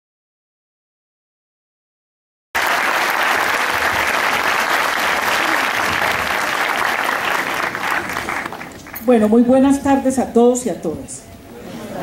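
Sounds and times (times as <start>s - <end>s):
audience applauding: 2.6s - 9.0s.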